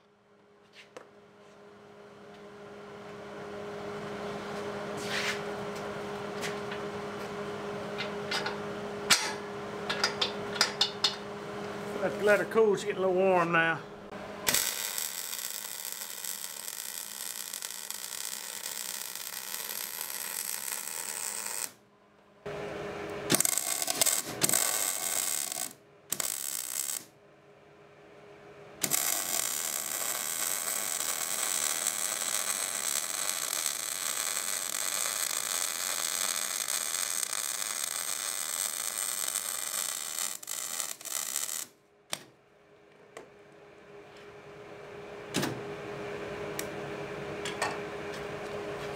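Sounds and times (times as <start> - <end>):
welder arc crackling: 14.5 - 21.8, 23.3 - 27.1, 28.8 - 42.3.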